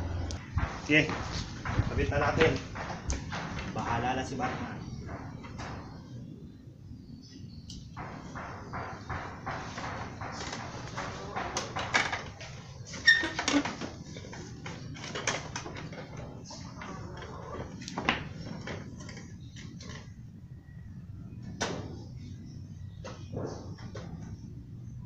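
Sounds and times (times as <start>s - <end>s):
plastic panel knocking and rattling: 0.4s - 6.1s, 7.9s - 20.0s.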